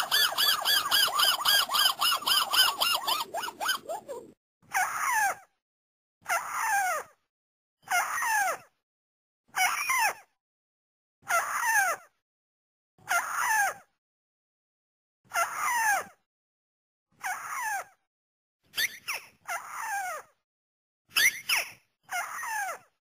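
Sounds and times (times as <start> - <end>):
bird calls sliding down: 0.0 - 4.4
stuttered bird notes: 0.0 - 4.4.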